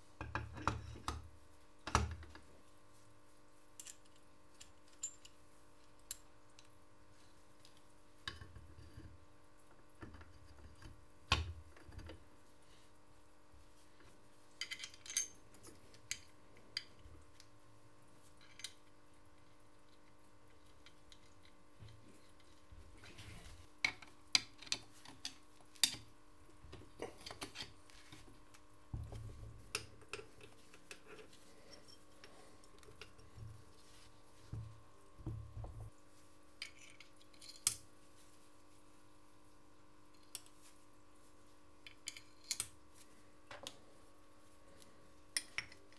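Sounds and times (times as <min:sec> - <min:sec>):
faint steady hum: 0:00.0 - 0:45.9
metal parts and tools clinking: 0:14.6 - 0:16.3, 0:36.6 - 0:37.8.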